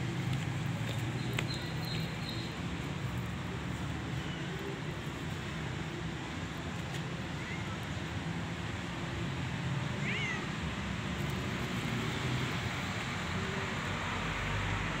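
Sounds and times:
outdoor rumble and hiss: 0:00.0 - 0:15.0
kitten meowing: 0:10.0 - 0:10.5.

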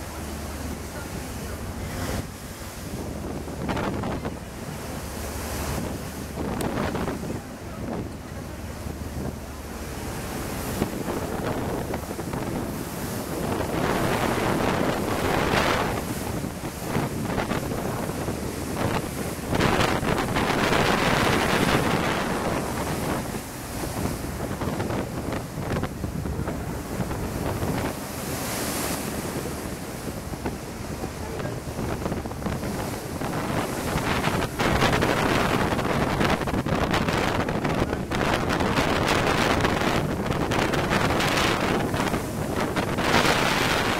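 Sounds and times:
boat wake churning along hull: 0:00.0 - 0:43.9
waves rushing: 0:00.0 - 0:43.9
wind buffeting microphone: 0:00.0 - 0:43.9.

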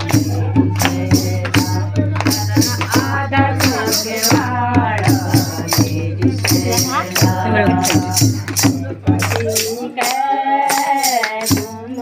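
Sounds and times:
hand claps: 0:00.0 - 0:12.0
jingling percussion: 0:00.0 - 0:12.0
women singing together: 0:00.0 - 0:12.0.

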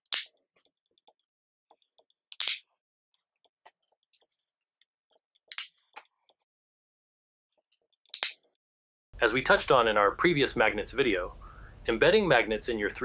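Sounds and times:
magnets snapping into plate: 0:00.1 - 0:00.3, 0:02.4 - 0:02.6, 0:05.5 - 0:05.7, 0:08.2 - 0:08.4.

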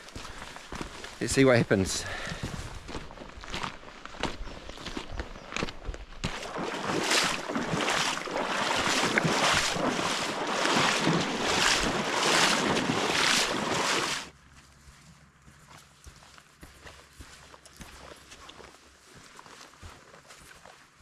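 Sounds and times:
wading water splashing: 0:06.2 - 0:14.3.

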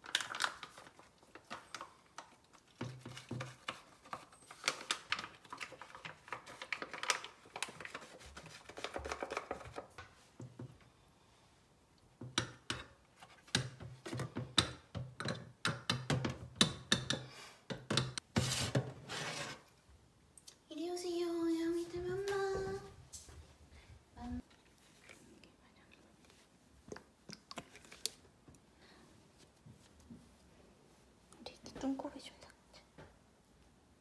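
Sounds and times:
plastic pack crinkling: 0:00.0 - 0:02.7, 0:03.6 - 0:08.2.

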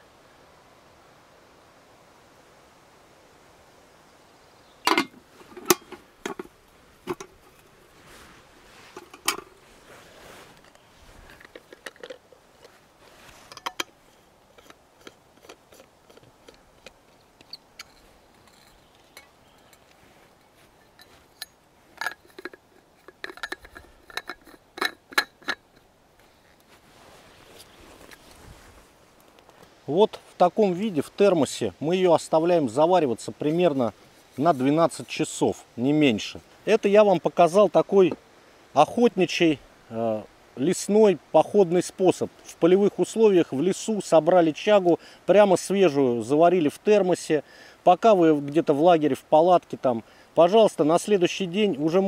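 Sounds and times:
metal flask lid clinking: 0:04.8 - 0:07.7, 0:08.9 - 0:09.6, 0:10.6 - 0:12.8, 0:13.4 - 0:19.9, 0:20.8 - 0:25.9.

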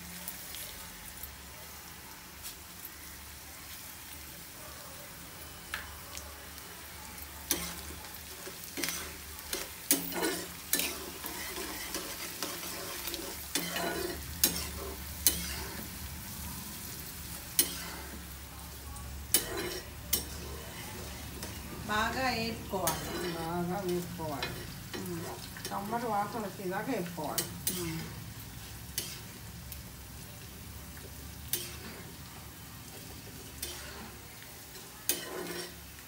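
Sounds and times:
seeds sizzling in hot oil: 0:00.0 - 0:36.0
metal spatula scraping pan: 0:35.1 - 0:35.8.

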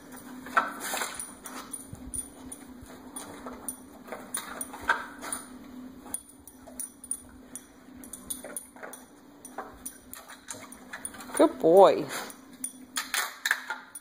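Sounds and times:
faint steady hum: 0:00.0 - 0:14.0
chain collar jingling: 0:01.1 - 0:05.5.

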